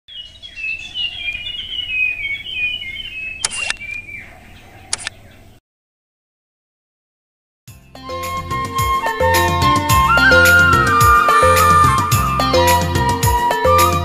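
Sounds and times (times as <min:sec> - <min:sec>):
birds chirping: 0:00.1 - 0:05.6, 0:09.0 - 0:13.7
sharp clicks: 0:03.4 - 0:04.0, 0:04.9 - 0:05.2.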